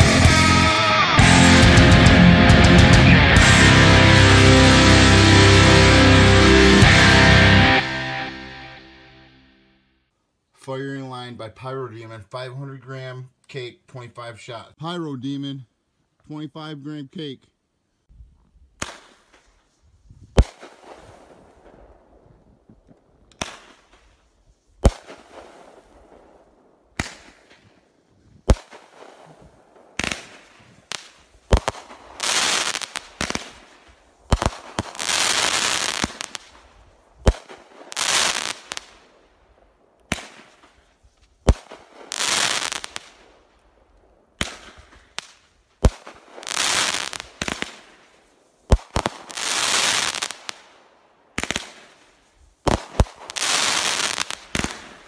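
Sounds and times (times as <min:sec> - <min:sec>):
firework shots: 0:18.8 - 0:19.6, 0:20.2 - 0:22.2, 0:23.3 - 0:24.2, 0:24.8 - 0:27.8, 0:28.4 - 0:39.3, 0:40.1 - 0:43.5, 0:44.4 - 0:55.0
firework sizzling hiss: 0:32.0 - 0:33.4, 0:34.4 - 0:36.5, 0:46.4 - 0:47.7, 0:52.8 - 0:54.8.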